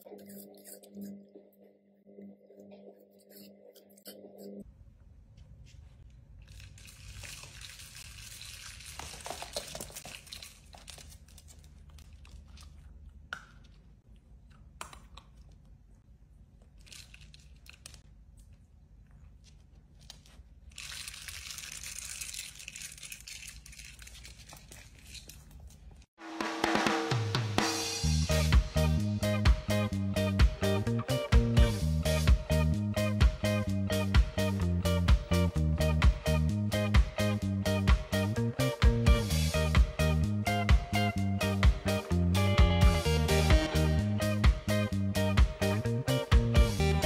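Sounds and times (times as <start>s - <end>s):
dog crunching carrot: 6.4s - 15.8s, 16.6s - 26.0s.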